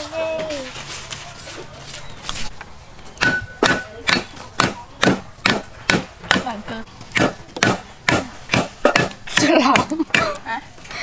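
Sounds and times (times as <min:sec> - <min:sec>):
cleaver chopping on wooden board: 0:03.2 - 0:06.5, 0:07.1 - 0:10.3.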